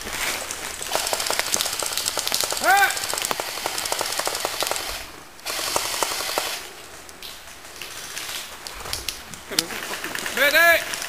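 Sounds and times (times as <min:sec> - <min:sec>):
airsoft guns firing rapid bursts: 0:00.8 - 0:06.7.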